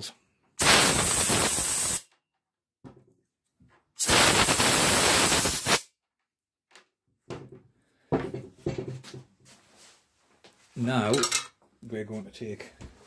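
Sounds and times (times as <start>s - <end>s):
air blow gun hissing: 0.6s - 2.0s, 4.0s - 5.9s.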